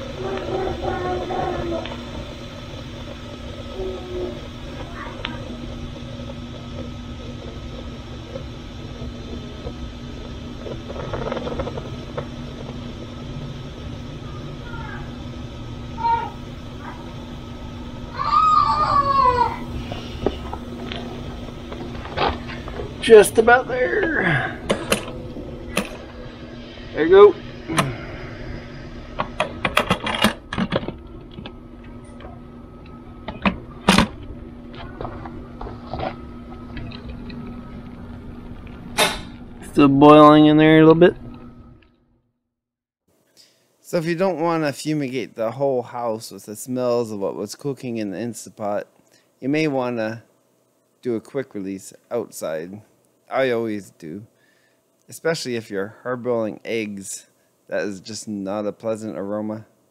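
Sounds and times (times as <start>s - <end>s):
steam rushing from a valve: 0.0s - 30.3s.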